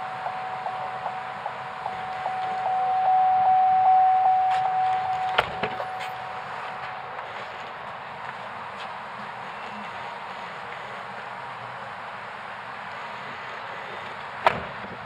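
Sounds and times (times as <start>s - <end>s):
door warning chime: 0.0s - 7.2s
car door thumping shut: 5.2s - 5.8s.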